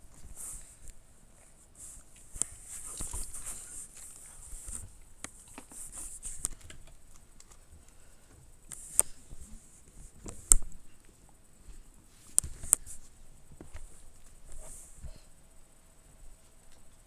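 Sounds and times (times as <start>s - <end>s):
handling noise clicks and rubbing: 11.8s - 15.0s.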